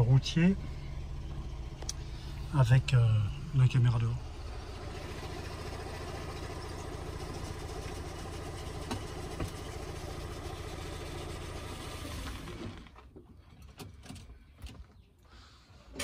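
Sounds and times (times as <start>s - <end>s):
car engine running then stalling: 0.0s - 14.5s.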